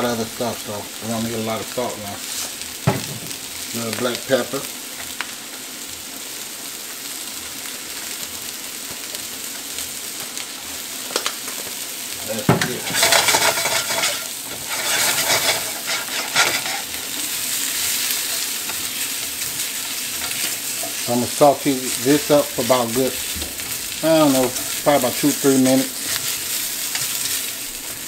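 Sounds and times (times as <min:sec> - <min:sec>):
mushrooms sizzling in oil: 0:00.0 - 0:28.0
tongs scraping a pan: 0:12.6 - 0:28.0.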